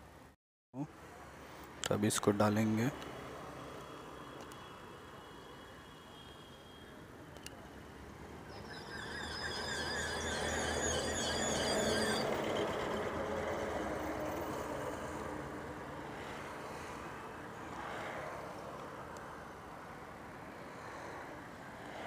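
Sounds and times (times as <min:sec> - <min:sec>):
high warbling squeal: 0:08.5 - 0:13.5.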